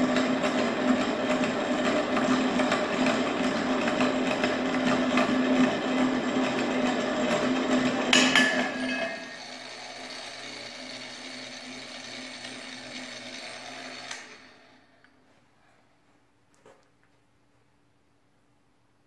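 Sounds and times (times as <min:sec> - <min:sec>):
pipe cutter grinding metal: 0:00.0 - 0:14.8
motor winding down: 0:09.1 - 0:15.0.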